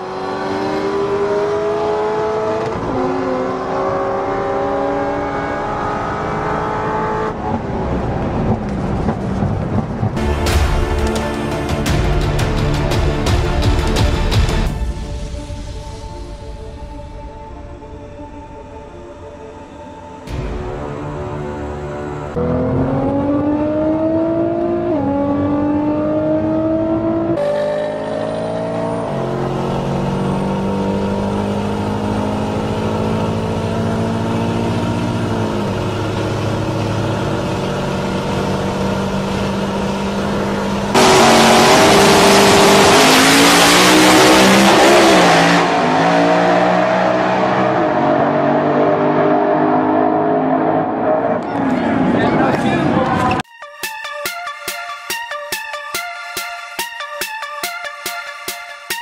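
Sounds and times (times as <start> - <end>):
harsh engine revving: 0.0 - 7.8, 22.3 - 53.4
car engine accelerating: 0.0 - 10.4, 21.0 - 53.4.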